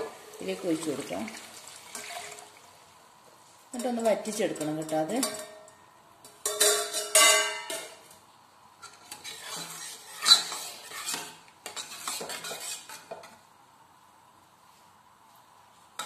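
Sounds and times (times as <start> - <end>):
spoon stirring in metal pot: 3.8 - 7.9, 8.8 - 13.4.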